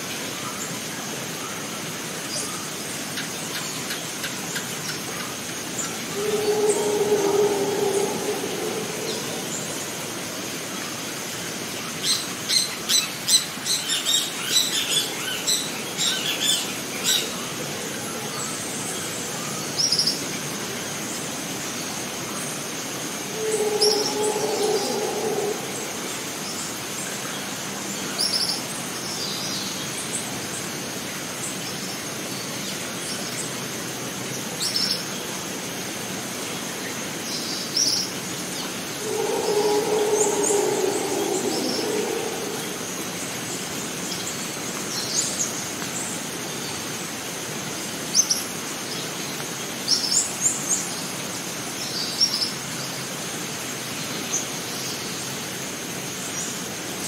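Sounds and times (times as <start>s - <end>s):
steady hiss: 5.4s - 11.8s
birds chirping: 6.0s - 10.1s, 23.2s - 26.6s, 38.9s - 43.4s
steady high whine: 38.9s - 43.8s
low drawn-out sound: 39.0s - 43.5s.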